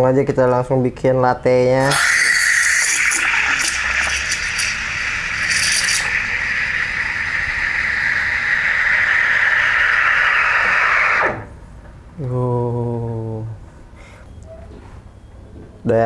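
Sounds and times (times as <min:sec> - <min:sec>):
steam wand steaming milk: 0:01.9 - 0:11.5.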